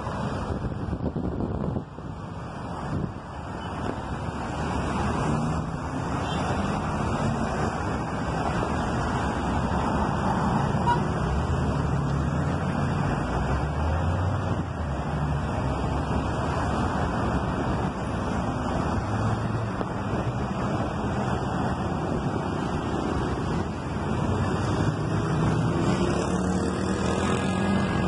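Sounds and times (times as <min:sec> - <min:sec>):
road traffic rush: 0:00.0 - 0:28.0.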